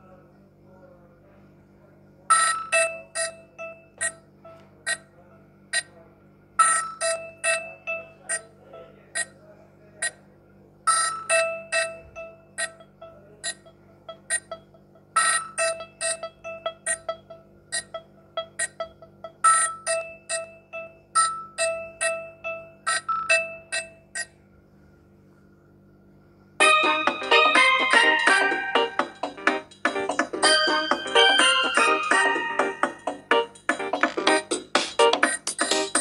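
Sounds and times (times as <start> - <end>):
polyphonic phone ringtone: 2.3 - 5.0, 6.6 - 9.3, 10.9 - 24.3, 26.6 - 33.5.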